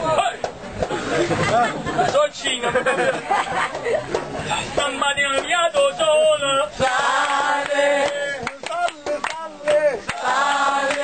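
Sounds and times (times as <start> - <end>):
crowd: 0.0 - 11.0
handclaps: 7.2 - 11.0.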